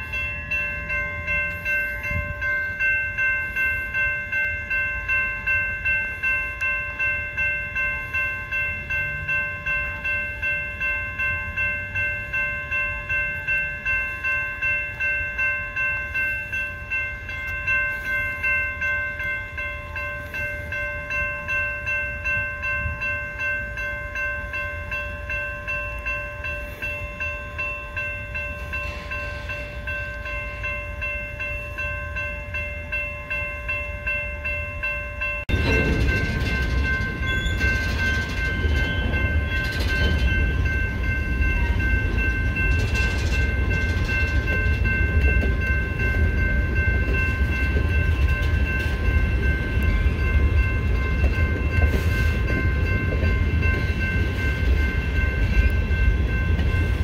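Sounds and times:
railroad crossing bell ringing: 0:00.0 - 0:57.0.

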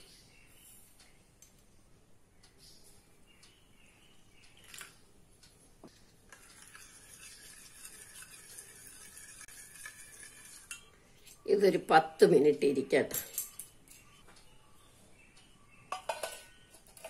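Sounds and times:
water trickling into steel bowl: 0:06.3 - 0:11.0
spoon stirring and scraping bowl: 0:06.3 - 0:11.4.

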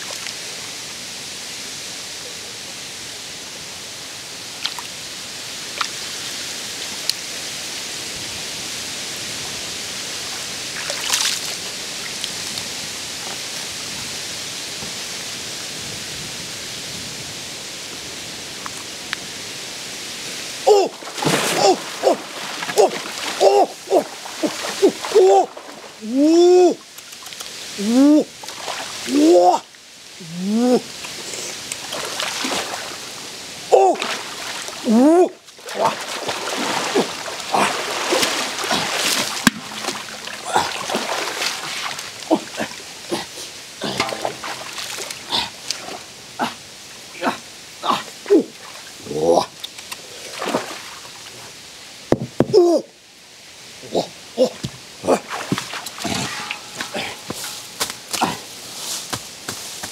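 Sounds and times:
water splashing: 0:10.2 - 0:12.7, 0:20.6 - 0:29.8, 0:30.6 - 0:51.5, 0:54.4 - 0:58.8
short vocal sounds: 0:20.6 - 0:26.8, 0:27.8 - 0:28.3, 0:30.2 - 0:31.6, 0:42.3 - 0:46.6
metal basin knock: 0:43.9 - 0:45.0.

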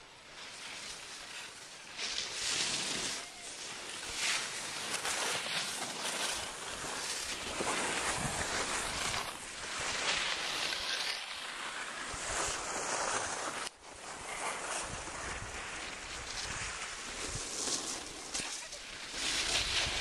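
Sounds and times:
skis scraping over snow: 0:00.0 - 0:20.0
wind rushing over microphone: 0:08.0 - 0:09.4.

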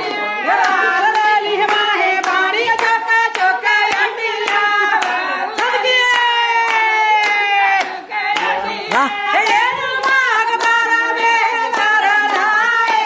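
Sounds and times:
steady handclaps: 0:00.0 - 0:13.0
women singing folk song: 0:00.0 - 0:13.0.

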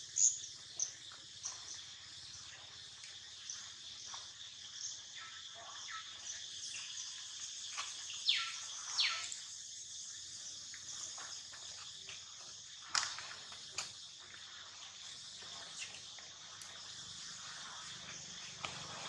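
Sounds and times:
faint chirps: 0:00.0 - 0:19.0
insect chorus: 0:00.0 - 0:19.0.

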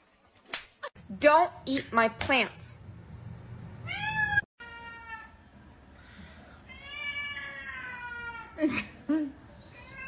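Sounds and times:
cat meowing: 0:03.8 - 0:05.3, 0:06.7 - 0:08.6, 0:09.6 - 0:10.0.

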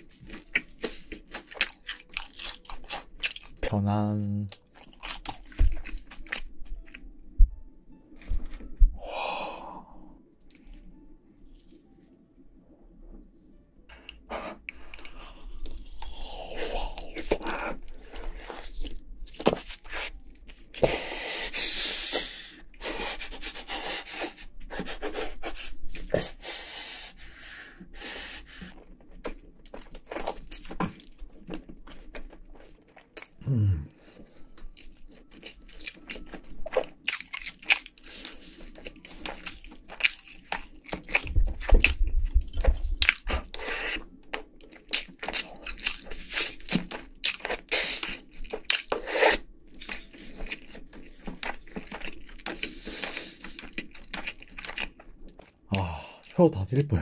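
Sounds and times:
wet chewing and smacks: 0:00.0 - 0:03.7, 0:04.5 - 0:07.4, 0:10.4 - 0:10.9, 0:14.0 - 0:20.9, 0:28.5 - 0:33.4, 0:34.0 - 0:56.4
crisp crust crunching: 0:49.7 - 0:57.0.

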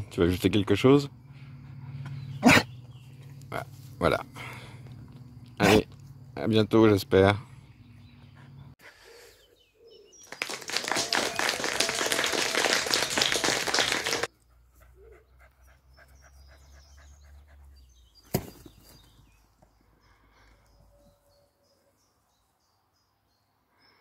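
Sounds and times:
dog panting: 0:14.4 - 0:18.0.

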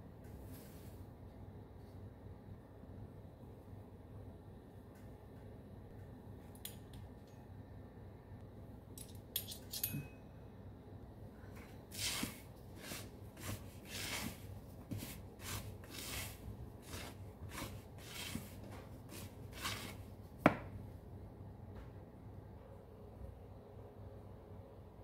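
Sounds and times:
spatula scraping mixing bowl: 0:11.9 - 0:20.1.

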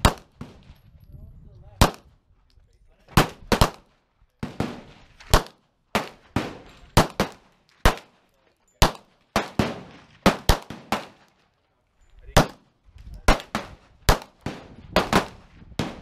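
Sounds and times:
handgun shots: 0:04.4 - 0:08.1.

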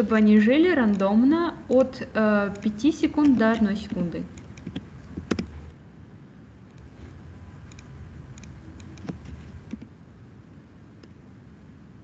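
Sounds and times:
faint low hum: 0:00.0 - 0:12.0
mouse and keyboard clicks: 0:01.7 - 0:05.6, 0:07.6 - 0:09.9.

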